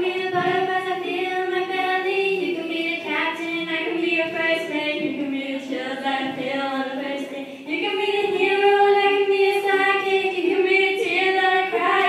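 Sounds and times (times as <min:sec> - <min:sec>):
girls singing: 0:00.0 - 0:12.0.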